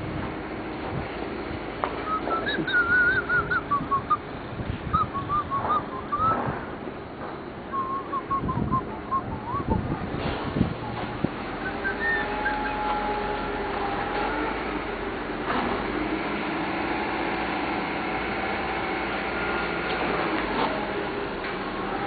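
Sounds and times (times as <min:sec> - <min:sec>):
person whistling a tune: 0:02.0 - 0:04.2, 0:04.9 - 0:06.4, 0:07.7 - 0:09.8, 0:11.6 - 0:12.9.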